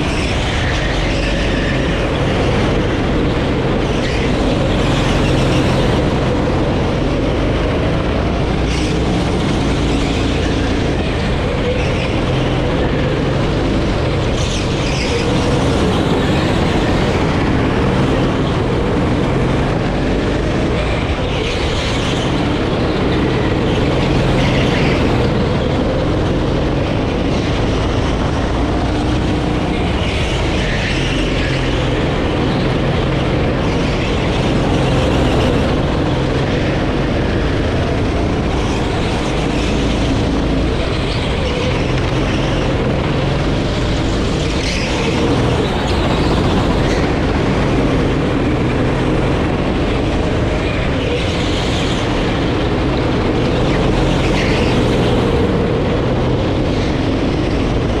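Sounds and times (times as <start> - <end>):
go-kart engine running: 0.0 - 58.0.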